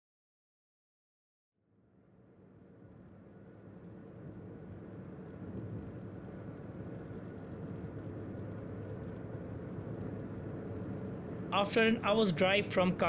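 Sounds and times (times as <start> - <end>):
car engine and tyre rumble: 2.7 - 11.6.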